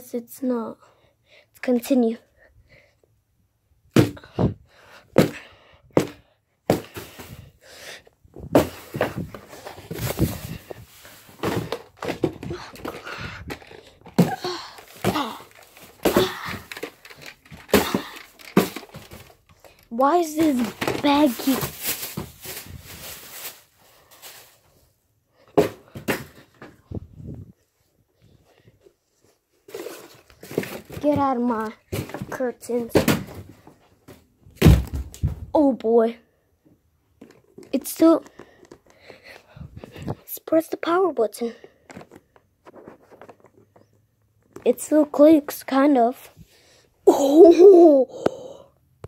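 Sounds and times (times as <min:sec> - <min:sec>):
knocks and thumps of handling: 0:05.2 - 0:07.5, 0:08.3 - 0:23.6, 0:25.5 - 0:27.5, 0:29.2 - 0:35.7, 0:37.1 - 0:40.3, 0:41.8 - 0:45.1
rustling: 0:08.4 - 0:19.8, 0:20.4 - 0:24.9.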